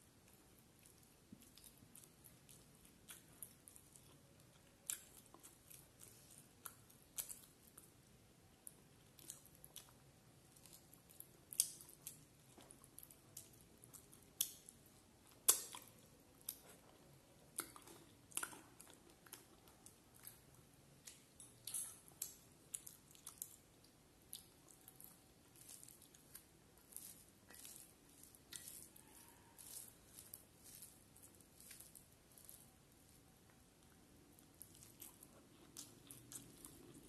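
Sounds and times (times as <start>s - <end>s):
chewing and mouth smacks: 0.2s - 37.0s
fingers squishing rice: 24.3s - 37.0s.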